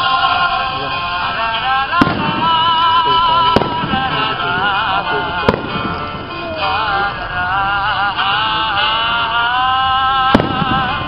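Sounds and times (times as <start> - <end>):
music with singing voice: 0.0 - 11.0
firework shells bursting: 1.4 - 6.9, 10.3 - 11.0.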